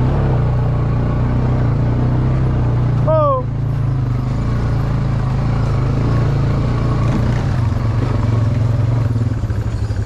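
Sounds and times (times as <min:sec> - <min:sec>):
quad bike engine running: 0:00.0 - 0:10.0.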